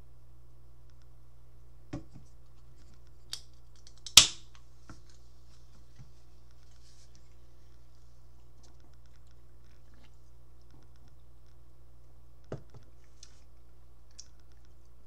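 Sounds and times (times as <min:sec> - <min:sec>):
can pull-tab crack and hiss: 0:03.3 - 0:04.6.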